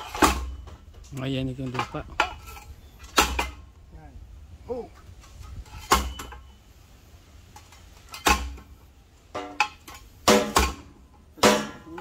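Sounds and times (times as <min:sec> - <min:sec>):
metal tools and pipe clanking: 0:00.0 - 0:03.7, 0:05.0 - 0:06.6, 0:07.5 - 0:10.8.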